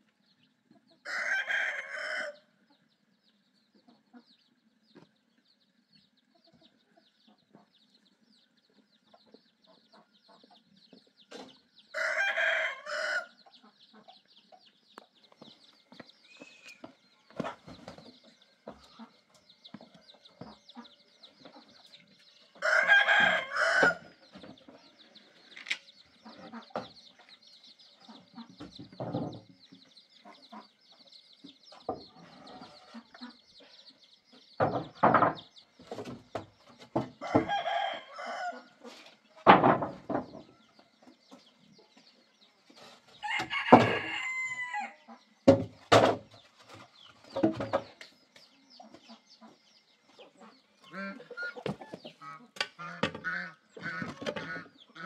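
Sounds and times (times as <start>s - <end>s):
chickens clucking: 0.0s - 55.0s
rooster crowing: 1.0s - 2.4s, 11.9s - 13.3s, 22.6s - 24.1s, 37.2s - 38.7s, 43.2s - 45.0s.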